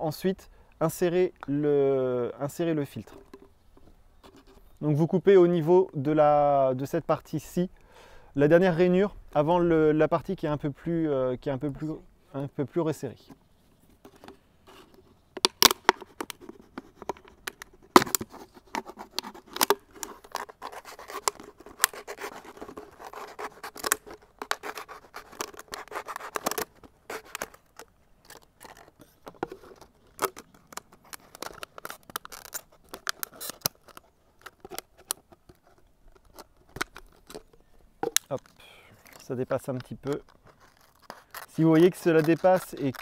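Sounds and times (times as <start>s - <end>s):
scissors cutting plastic bottle: 14.1s - 43.0s
plastic pieces crinkling: 19.2s - 43.0s.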